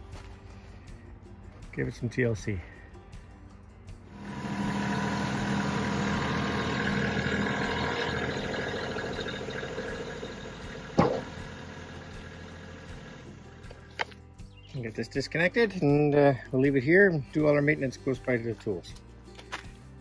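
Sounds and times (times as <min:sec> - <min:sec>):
tractor diesel engine running: 0:04.1 - 0:14.2.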